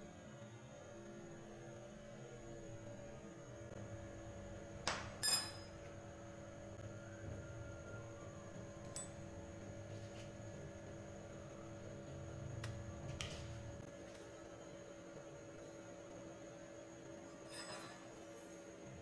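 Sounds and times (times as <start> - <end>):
steady low hum: 0.0 - 19.0
metal spoon clinking glass bowl: 5.2 - 5.8.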